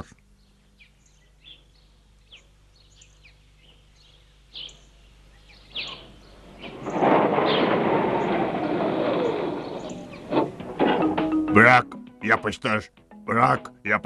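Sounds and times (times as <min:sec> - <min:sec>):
faint bird chirps: 0:00.0 - 0:08.4
steady low hum: 0:00.0 - 0:13.1.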